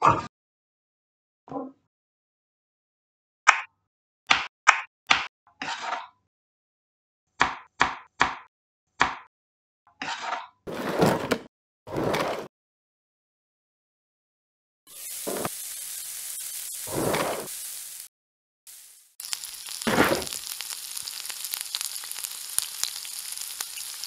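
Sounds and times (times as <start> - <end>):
hissing noise bursts: 14.9 - 18.1.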